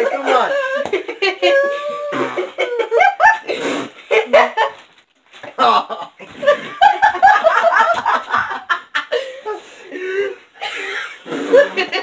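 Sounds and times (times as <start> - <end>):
boy laughing: 0.0 - 3.5.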